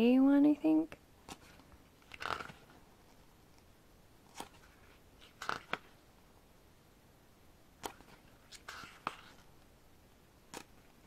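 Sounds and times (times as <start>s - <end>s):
paper pages turning: 1.2s - 6.0s, 7.8s - 9.5s, 10.5s - 11.0s.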